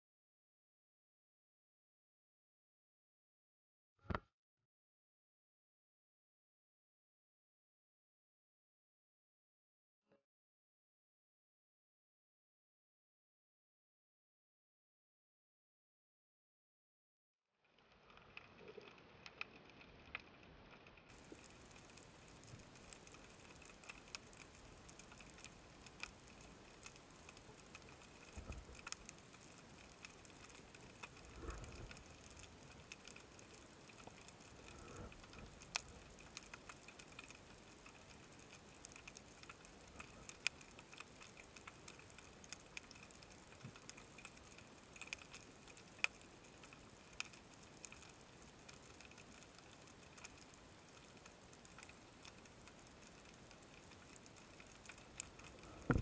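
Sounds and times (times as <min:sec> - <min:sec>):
faint underwater hiss: 0:21.1 - 0:56.0
sharp clicks and ticks: 0:21.1 - 0:56.0
low thumps: 0:55.8 - 0:56.0.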